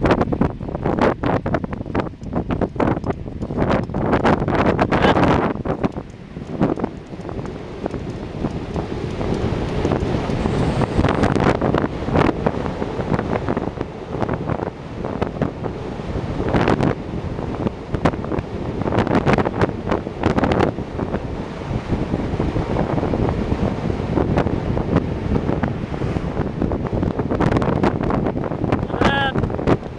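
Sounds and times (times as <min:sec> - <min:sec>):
wind buffeting microphone: 0:00.0 - 0:29.9.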